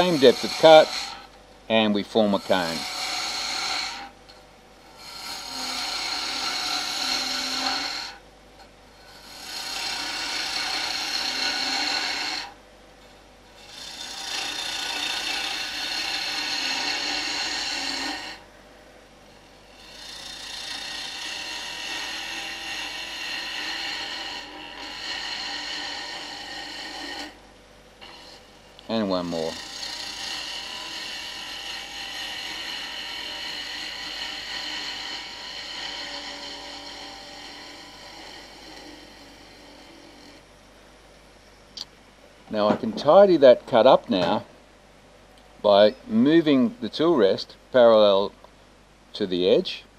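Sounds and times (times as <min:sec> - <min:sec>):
gouge cutting wood on a lathe: 0:00.0 - 0:04.1, 0:04.8 - 0:08.2, 0:09.0 - 0:12.6, 0:13.6 - 0:18.4, 0:19.6 - 0:27.4, 0:28.0 - 0:40.4.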